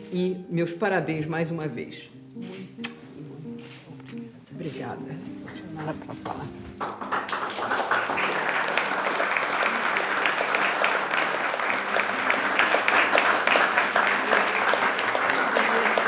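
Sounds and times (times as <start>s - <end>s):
people applauding: 6.3s - 16.0s.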